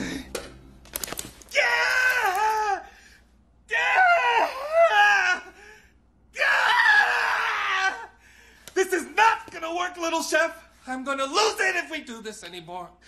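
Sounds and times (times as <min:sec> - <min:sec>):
young man screaming in pain: 0:06.4 - 0:08.2.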